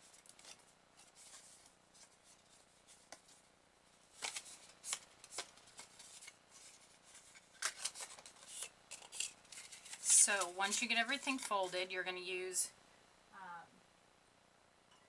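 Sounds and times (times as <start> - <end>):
paper rustling and creasing: 0.0 - 11.8.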